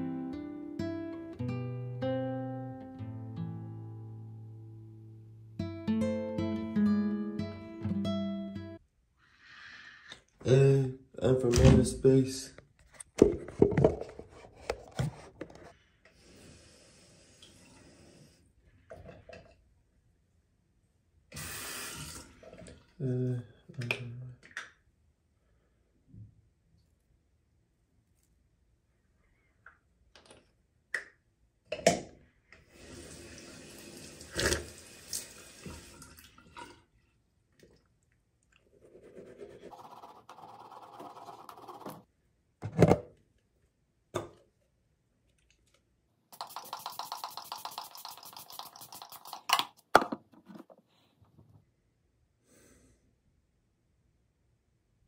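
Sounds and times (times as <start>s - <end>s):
running tap water: 32.7s - 36.6s, 46.4s - 49.5s
toothbrush scrubbing teeth: 38.6s - 42.0s, 46.4s - 49.8s.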